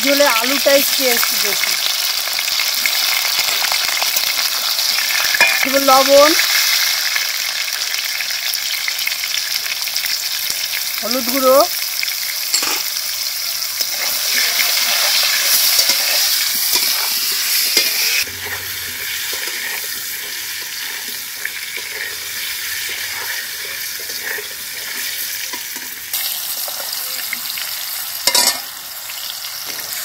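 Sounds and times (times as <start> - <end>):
potatoes sizzling in hot oil: 0.0 - 30.0
metal spatula scraping pan: 13.8 - 26.0.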